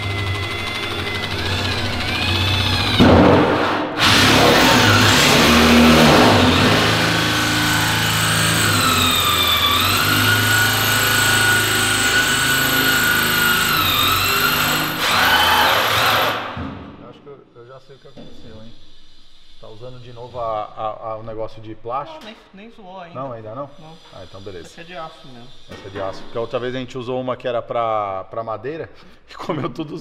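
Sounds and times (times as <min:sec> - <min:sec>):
power drill cutting steel: 0:00.0 - 0:03.1, 0:04.0 - 0:16.6, 0:23.8 - 0:26.8.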